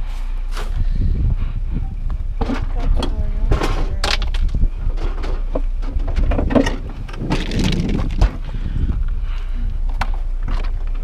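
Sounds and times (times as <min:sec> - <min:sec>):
steady low rumble: 0:00.0 - 0:11.0
fridge knocks and scraping: 0:02.4 - 0:08.4.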